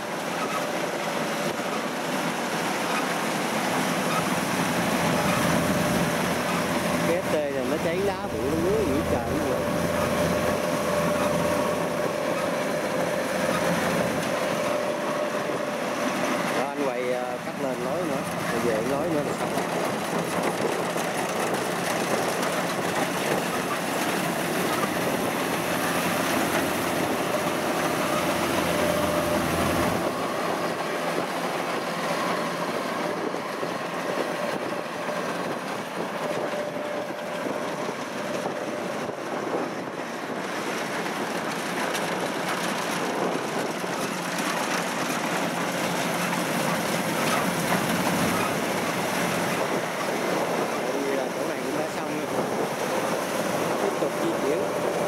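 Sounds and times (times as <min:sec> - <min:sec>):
combine harvester running: 0:00.0 - 0:55.0
deep engine rumble: 0:00.8 - 0:55.0.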